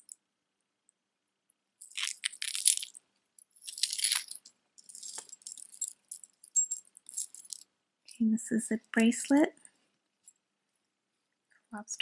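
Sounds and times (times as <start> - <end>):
metal chain necklace jingling: 1.8 - 7.6.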